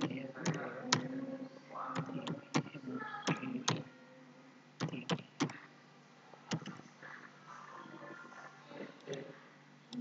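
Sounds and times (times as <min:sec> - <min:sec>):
keyboard keys clicking: 0:00.0 - 0:01.1, 0:01.9 - 0:03.9, 0:04.8 - 0:05.6, 0:06.5 - 0:06.8.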